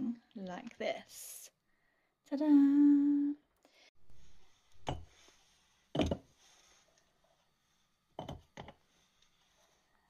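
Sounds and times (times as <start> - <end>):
chunks knocking against mug: 8.2 - 8.8.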